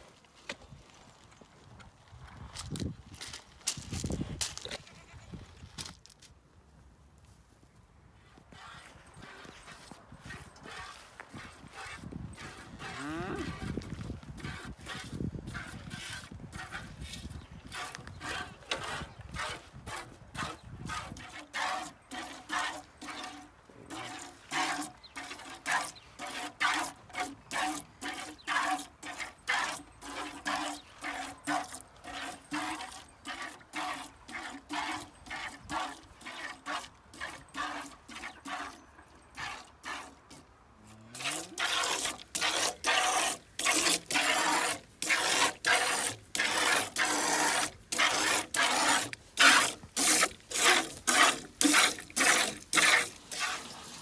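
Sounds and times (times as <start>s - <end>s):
milk squirting into metal pail: 17.7s - 40.4s, 41.2s - 54.0s.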